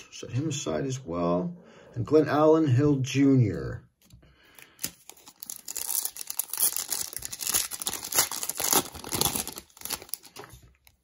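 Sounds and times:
wrapper tearing and crinkling: 4.8 - 11.0.

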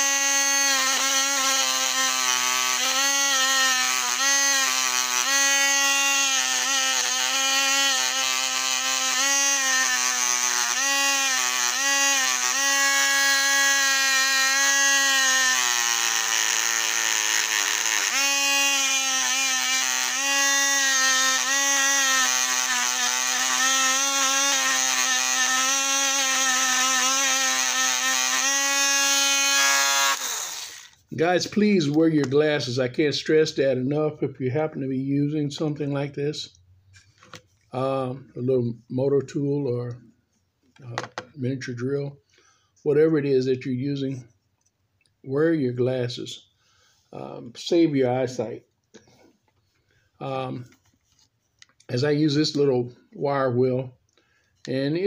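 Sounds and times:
rotary tool motor whining: 0.0 - 31.0.

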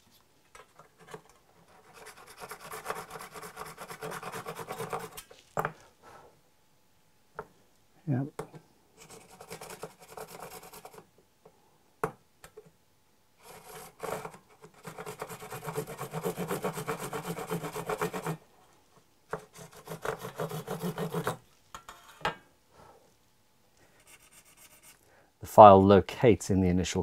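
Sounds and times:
saw cutting shell: 1.7 - 5.3, 13.4 - 18.4, 19.3 - 21.4.

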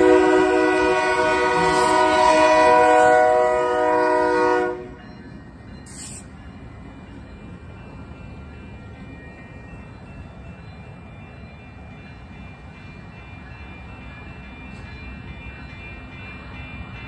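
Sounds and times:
locomotive air horn: 0.0 - 5.0.

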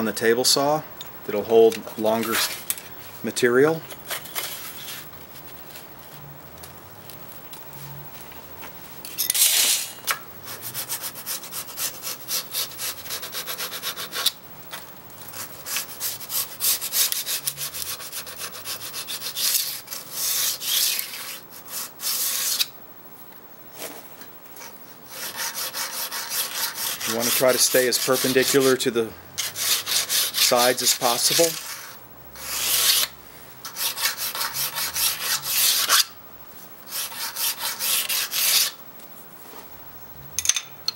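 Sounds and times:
file rasping on steel: 25.1 - 28.8, 29.4 - 36.1, 36.9 - 38.8.

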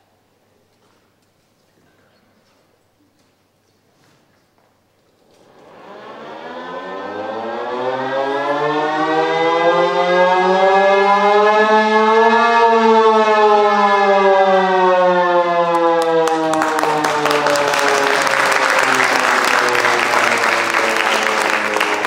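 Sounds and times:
siren-like wailing tone: 5.6 - 22.0
applause: 15.7 - 22.0.

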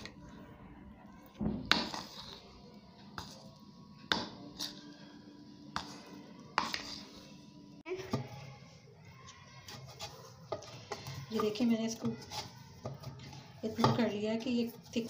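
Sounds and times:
spoon scraping a bowl: 1.7 - 2.5, 4.5 - 5.1, 5.7 - 7.4, 9.7 - 15.0.

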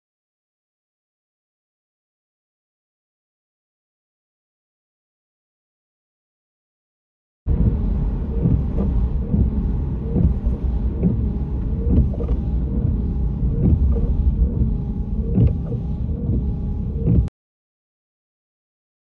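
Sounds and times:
car road noise: 7.5 - 17.3.

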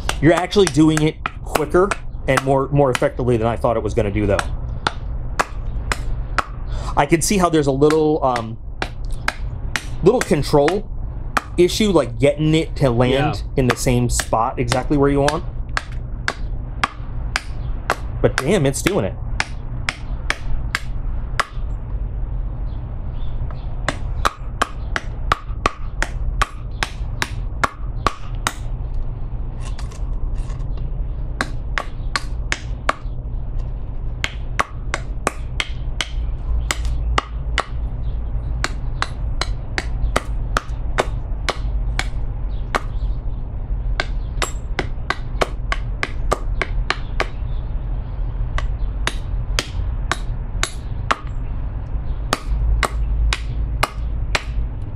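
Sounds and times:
knife chopping wood: 0.0 - 3.4, 4.3 - 6.6, 7.8 - 10.8, 11.4 - 11.6, 13.0 - 21.6, 23.9 - 28.7, 31.4 - 33.1, 34.2 - 37.8, 38.6 - 43.0, 44.0 - 47.4, 48.6 - 51.3, 52.3 - 54.6
steady low hum: 0.0 - 54.9.

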